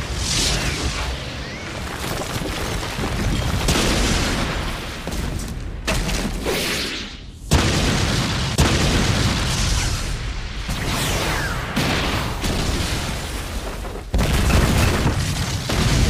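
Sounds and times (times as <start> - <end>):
rumbling debris: 0.0 - 6.4, 12.4 - 16.0
booms and crashing impacts: 11.7 - 16.0.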